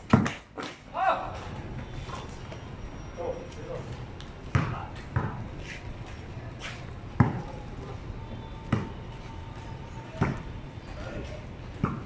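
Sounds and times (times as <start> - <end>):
basketball bouncing on pavement: 0.0 - 0.7, 4.2 - 5.5, 7.1 - 7.6, 8.6 - 9.1, 10.0 - 10.6, 11.7 - 12.0.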